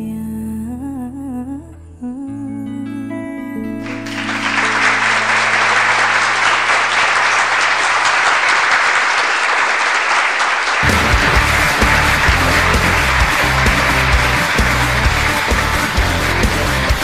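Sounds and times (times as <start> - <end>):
applause: 3.8 - 17.0.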